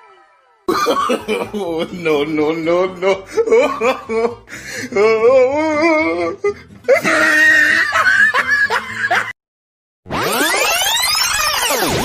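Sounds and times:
electronic toy cartoon laugh: 0.7s - 1.8s, 6.9s - 9.3s.

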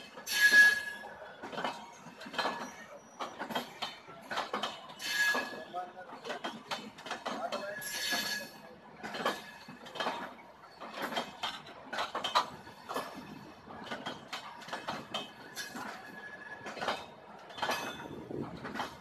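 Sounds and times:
train wheels clattering on rail joints: 0.0s - 19.0s.

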